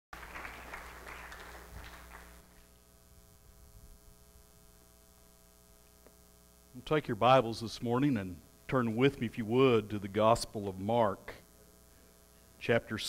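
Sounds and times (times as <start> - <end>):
electrical hum: 0.2 - 13.0
indistinct room noise: 0.2 - 13.0.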